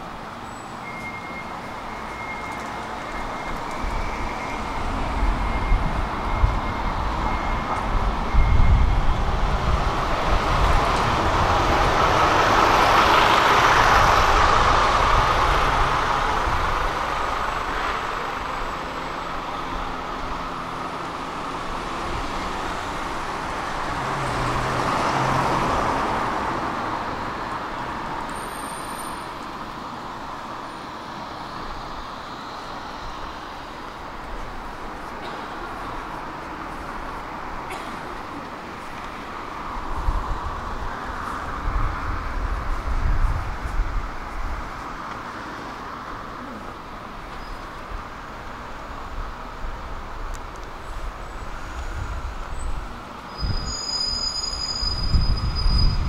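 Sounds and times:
bus driving past: 0:00.0 - 0:56.0
smaller vehicle passing: 0:03.7 - 0:30.2.

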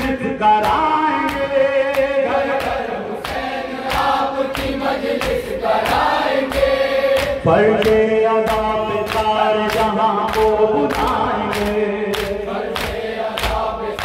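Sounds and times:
man singing through a microphone: 0:00.0 - 0:03.3, 0:07.2 - 0:14.0
crowd of men chanting: 0:00.0 - 0:14.0.

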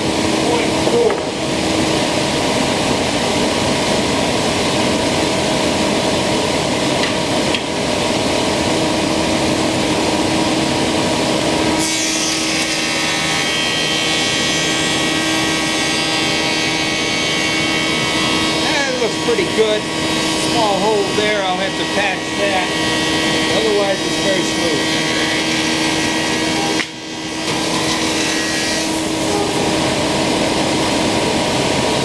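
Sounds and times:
thickness planer cutting wood: 0:00.0 - 0:04.0, 0:11.6 - 0:31.4
machine humming: 0:00.0 - 0:32.0.

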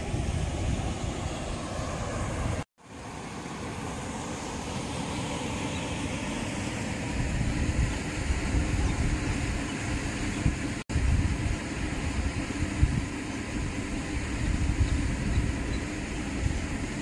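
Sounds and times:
wind buffeting microphone: 0:00.0 - 0:02.7, 0:07.1 - 0:17.0.

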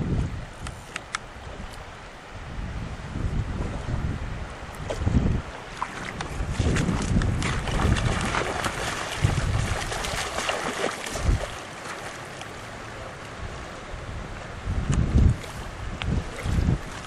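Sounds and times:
wind buffeting microphone: 0:00.0 - 0:11.6, 0:13.4 - 0:17.0
running river water: 0:00.0 - 0:17.0
fish thrashing and splashing: 0:05.7 - 0:12.5.

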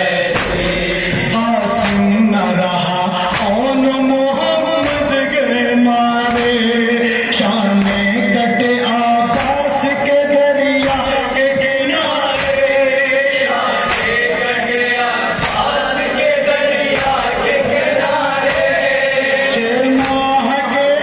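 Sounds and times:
man singing into a microphone: 0:00.0 - 0:21.0
men chanting: 0:00.0 - 0:21.0
chest-beating slaps: 0:00.2 - 0:02.2, 0:03.2 - 0:03.8, 0:04.4 - 0:05.4, 0:06.2 - 0:08.2, 0:09.2 - 0:10.1, 0:10.7 - 0:20.4.

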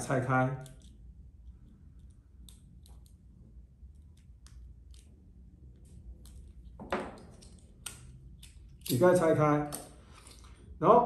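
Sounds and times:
screwdriver clicks and scrapes: 0:05.7 - 0:10.6.

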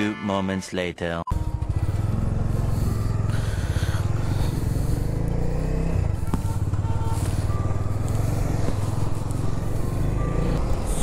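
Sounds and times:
motorcycle engine pulling away: 0:01.4 - 0:11.0.

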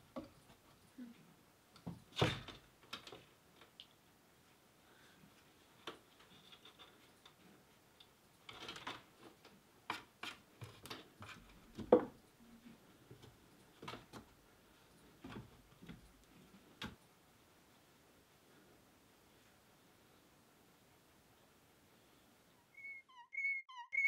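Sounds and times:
cat paws clicking on wooden shelves: 0:00.0 - 0:01.0, 0:01.7 - 0:04.1, 0:05.3 - 0:17.2.

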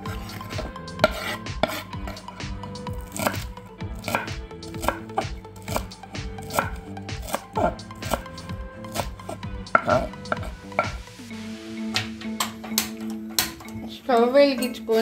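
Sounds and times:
knife chopping on wooden board: 0:00.1 - 0:02.2, 0:03.1 - 0:11.0.

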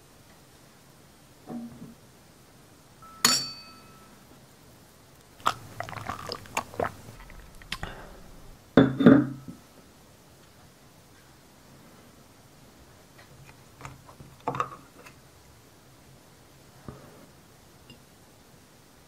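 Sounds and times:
wine glass clink: 0:03.0 - 0:04.2.

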